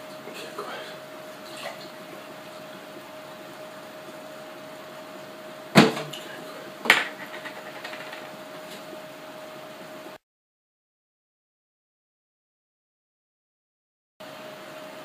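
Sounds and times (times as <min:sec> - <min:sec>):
faint hum: 0:00.0 - 0:10.2.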